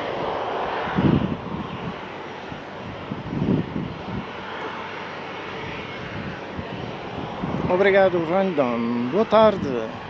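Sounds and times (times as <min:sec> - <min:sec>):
low rumbles: 0:00.0 - 0:09.6
jet engines whining: 0:00.0 - 0:10.0.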